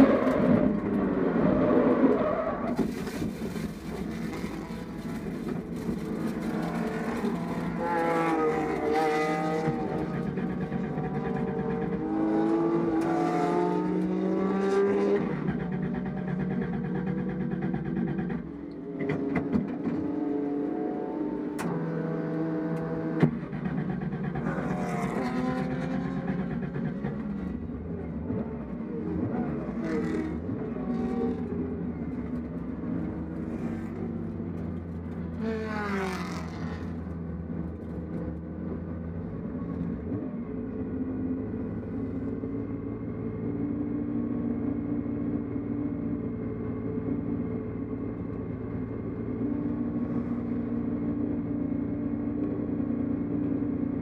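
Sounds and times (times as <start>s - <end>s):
race cars rushing past: 4.0s - 17.2s, 23.9s - 32.2s, 35.3s - 37.2s.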